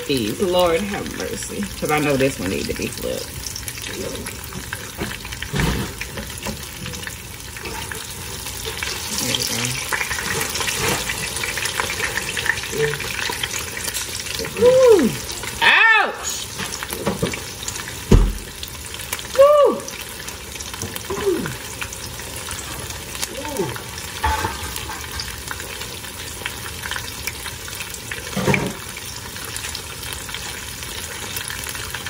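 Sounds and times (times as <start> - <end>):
food sizzling in oil: 0.0 - 32.0
low thump: 18.1 - 18.5.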